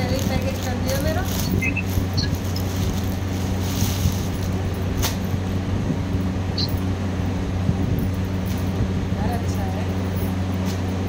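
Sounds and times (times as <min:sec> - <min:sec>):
plastic packaging crinkling: 0:00.0 - 0:05.2
low electrical hum: 0:00.0 - 0:11.0.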